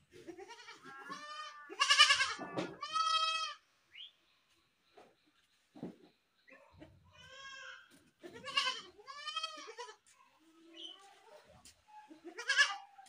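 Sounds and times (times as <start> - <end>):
goat kid bleating: 0.2 - 3.6, 7.2 - 10.4, 12.1 - 13.0.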